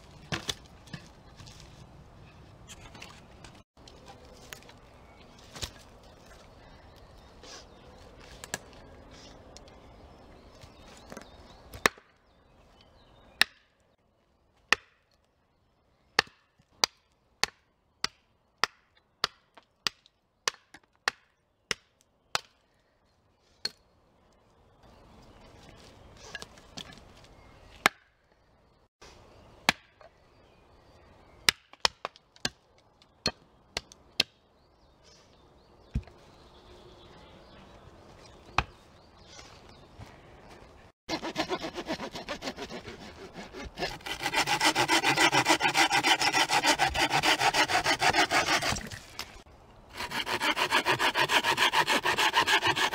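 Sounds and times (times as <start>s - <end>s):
hatchet chopping wood: 13.4s - 13.7s, 14.7s - 15.0s, 16.2s - 22.6s, 41.1s - 48.9s.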